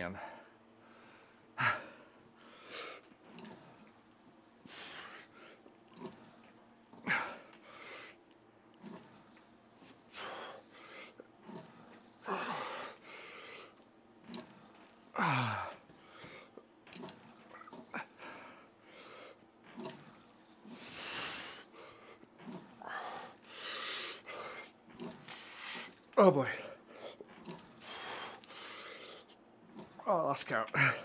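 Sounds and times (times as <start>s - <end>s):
man groaning: 15.2s - 15.8s.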